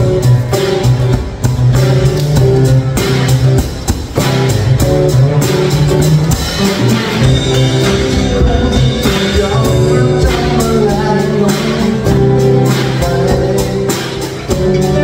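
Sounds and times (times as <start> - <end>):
acoustic guitars strummed: 0.0 - 15.0
drum kit steady beat: 0.0 - 15.0
man singing: 7.3 - 15.0.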